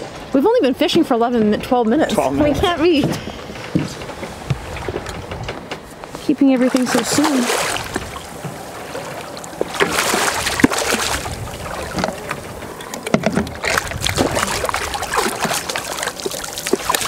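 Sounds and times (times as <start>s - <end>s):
fish splashing in water: 6.6s - 17.0s.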